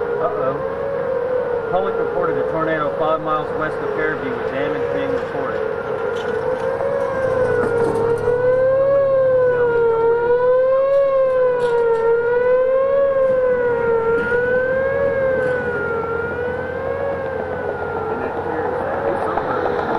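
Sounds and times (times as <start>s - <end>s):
warning siren wailing: 0.0s - 19.9s.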